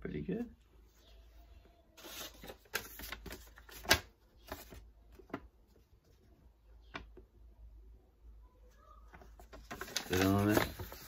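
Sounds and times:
paper rustling: 2.0s - 6.3s, 9.1s - 11.0s.

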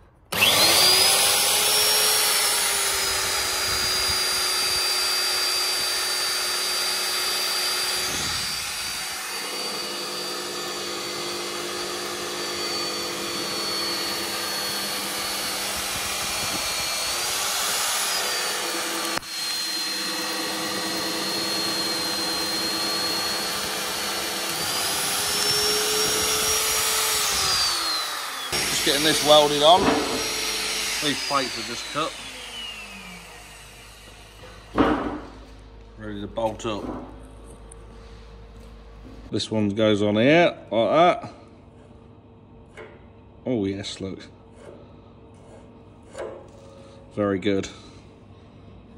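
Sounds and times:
magnetic drill motor whine: 0.3s - 34.8s.

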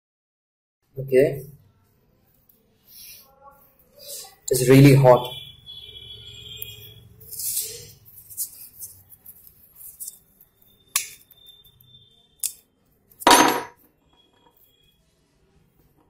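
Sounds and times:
metal tools clicking and clinking: 13.2s - 13.8s.

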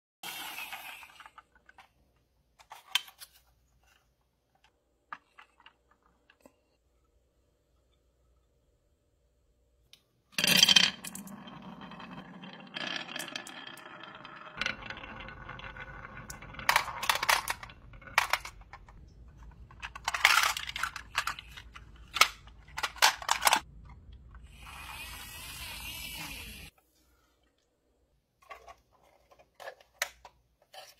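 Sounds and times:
marbles clicking and clacking: 10.4s - 19.0s
marbles clattering: 10.4s - 23.7s
marbles rolling on wooden track: 10.4s - 23.7s.

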